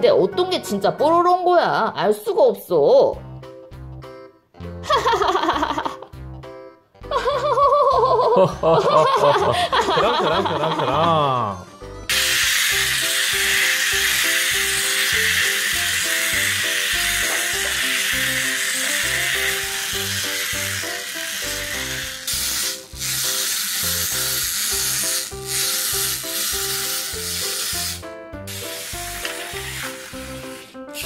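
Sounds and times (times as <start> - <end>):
wind-up toy motors whirring: 12.1 - 31.0.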